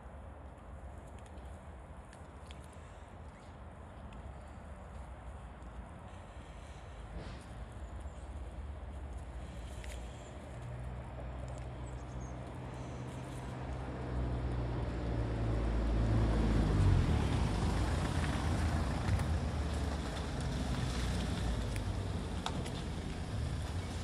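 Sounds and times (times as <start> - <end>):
vehicle driving past: 11.8 - 24.0.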